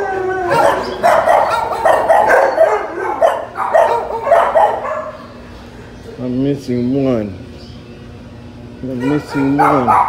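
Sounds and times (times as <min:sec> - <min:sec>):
dogs barking: 0:00.0 - 0:06.3, 0:08.8 - 0:10.0.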